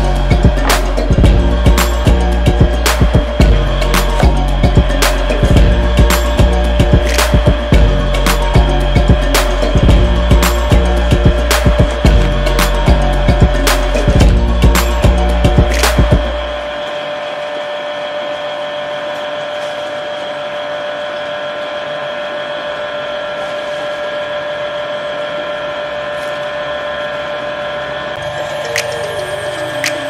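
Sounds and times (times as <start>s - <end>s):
music: 0.0s - 19.0s, 28.1s - 30.0s.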